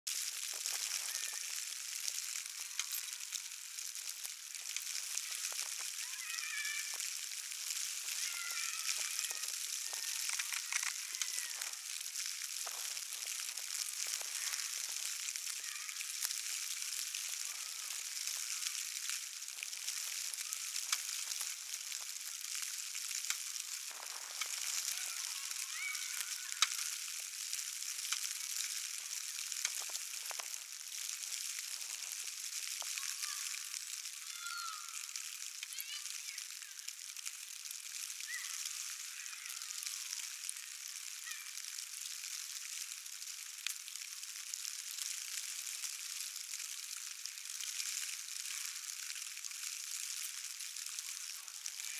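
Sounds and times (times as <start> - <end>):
crackling hiss with clicks: 0.1 - 51.9.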